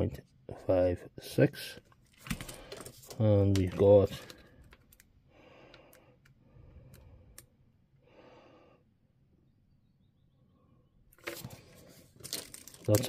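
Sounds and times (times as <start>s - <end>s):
soft breaths: 4.1s - 8.9s.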